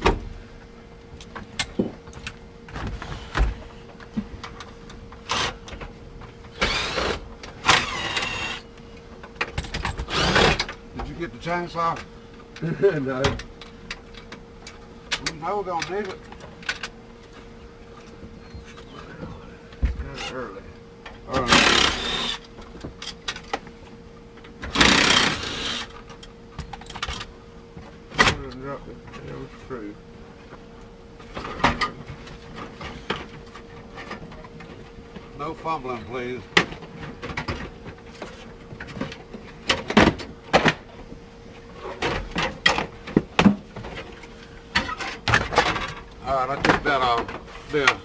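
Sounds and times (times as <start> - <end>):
steady hum: 0.0 - 48.0
cordless drill motor whine: 5.2 - 5.7, 6.5 - 8.8, 9.8 - 10.8, 21.3 - 22.5, 24.7 - 26.1
tools and parts clicking and rattling: 9.2 - 10.8, 24.4 - 27.3.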